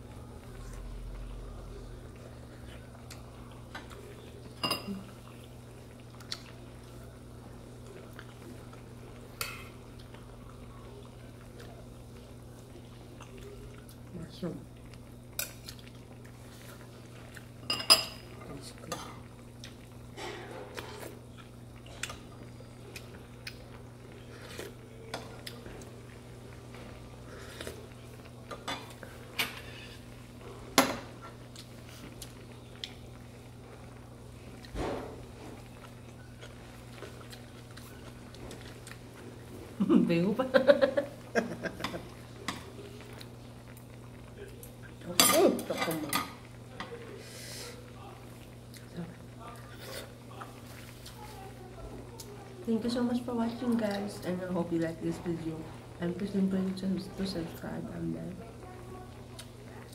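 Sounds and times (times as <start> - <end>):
steady low hum: 0.0 - 59.9
metal utensils clinking on bowls: 4.6 - 5.0, 17.6 - 18.3, 45.1 - 46.4.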